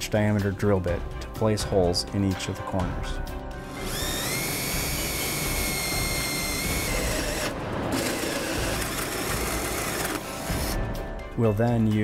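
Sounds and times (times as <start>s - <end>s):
power drill boring through plastic: 3.6s - 10.8s.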